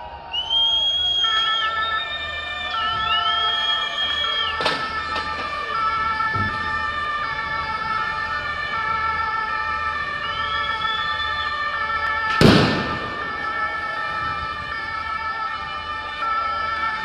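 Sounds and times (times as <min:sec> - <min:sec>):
loud bang: 0:12.3 - 0:13.8.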